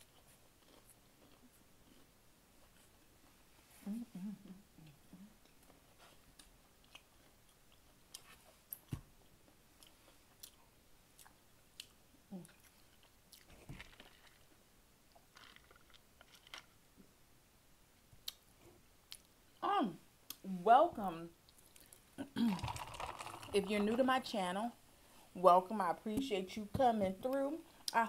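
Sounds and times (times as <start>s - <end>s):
close-miked chewing: 0.0s - 3.0s, 4.4s - 8.9s, 9.8s - 14.5s.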